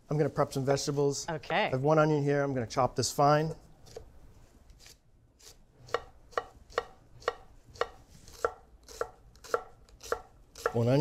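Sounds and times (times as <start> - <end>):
knife chopping on wooden board: 5.8 - 11.0.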